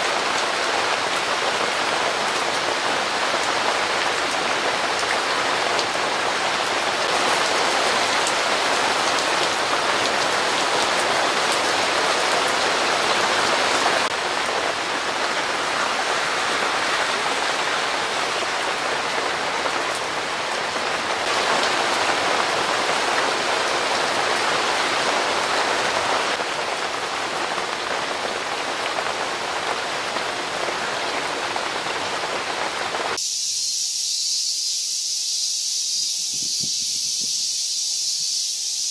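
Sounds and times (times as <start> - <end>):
heavy rain downpour: 0.0 - 38.9
cicadas hissing: 33.2 - 38.9.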